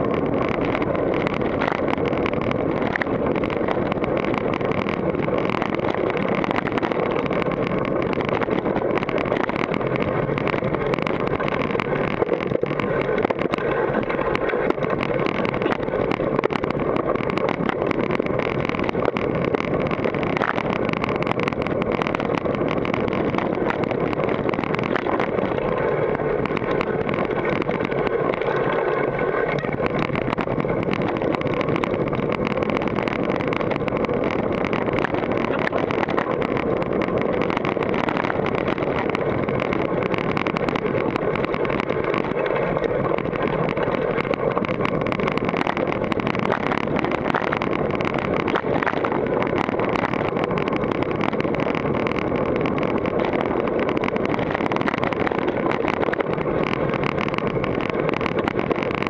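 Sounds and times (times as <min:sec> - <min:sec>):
bike rattling over rocks: 0:00.0 - 0:59.0
tyres on dirt: 0:00.0 - 0:59.0
wind on microphone: 0:00.0 - 0:59.0.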